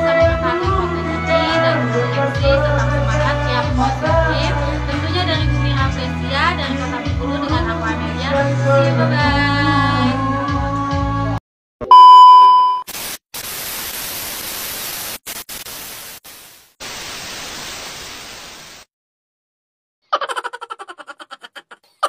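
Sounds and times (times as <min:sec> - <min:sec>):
background music: 0:00.0 - 0:11.4
test-tone beep: 0:11.8 - 0:12.9
tv static hiss: 0:12.9 - 0:18.9.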